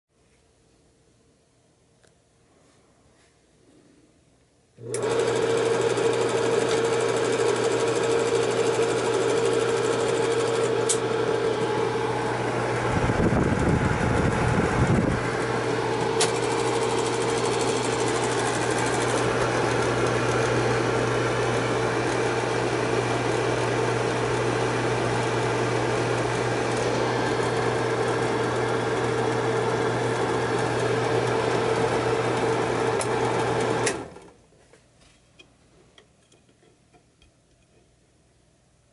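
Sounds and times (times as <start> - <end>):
film projector motor humming: 4.8 - 34.3.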